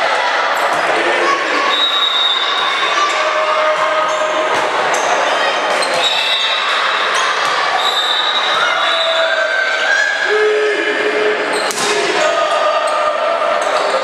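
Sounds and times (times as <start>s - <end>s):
crowd shouting and cheering: 0.0s - 14.0s
hand striking a volleyball: 11.7s - 12.2s.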